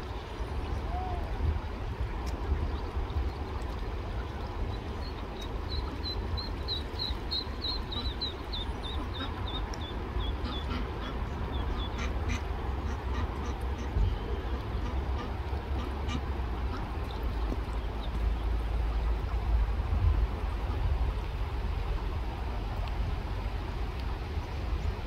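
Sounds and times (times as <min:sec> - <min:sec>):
stream flowing: 0:00.0 - 0:25.0
duckling peeping: 0:04.7 - 0:18.2.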